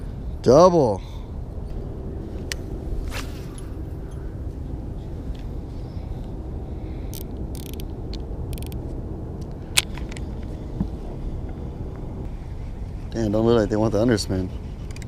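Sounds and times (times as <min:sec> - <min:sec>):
steady low rumble: 0:00.0 - 0:15.0
fishing reel clicks and whirs: 0:07.1 - 0:07.9, 0:08.5 - 0:08.8.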